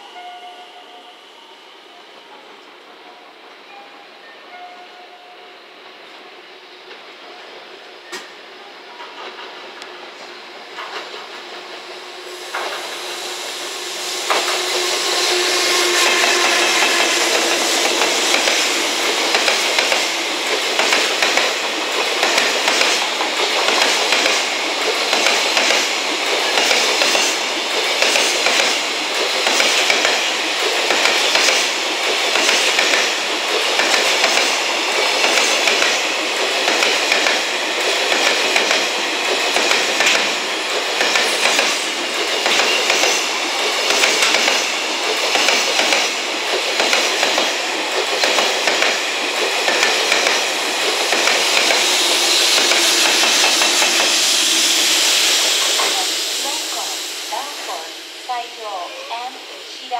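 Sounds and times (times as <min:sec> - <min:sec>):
freight train wheels clattering: 0:14.2 - 0:56.8.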